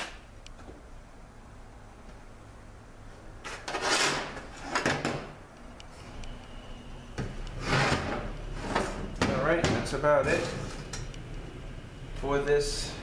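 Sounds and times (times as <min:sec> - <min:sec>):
metal case scraping on workbench: 0:03.5 - 0:04.8, 0:07.6 - 0:09.1.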